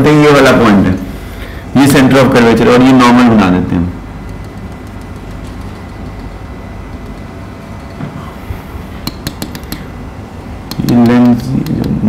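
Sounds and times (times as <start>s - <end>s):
low room hum: 0.0s - 12.0s
marker tapping on whiteboard: 4.3s - 8.2s, 9.0s - 9.9s, 10.7s - 12.0s.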